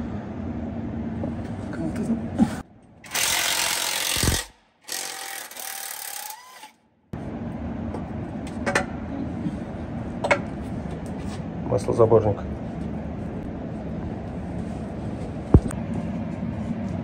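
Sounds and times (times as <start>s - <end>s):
workshop background noise: 7.5s - 16.7s.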